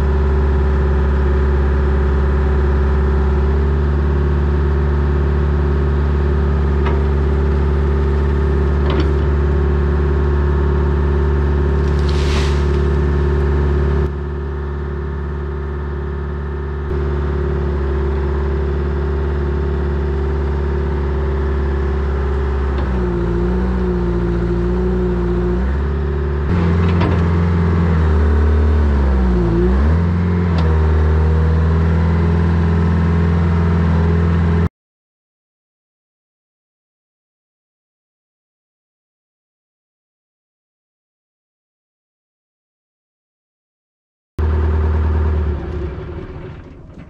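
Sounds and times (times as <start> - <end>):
excavator diesel engine running: 0.0 - 34.6, 44.4 - 47.0.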